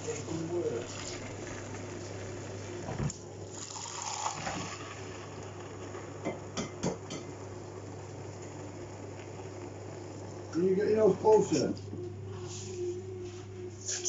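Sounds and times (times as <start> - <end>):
tap water running into pan: 0.2 - 7.4.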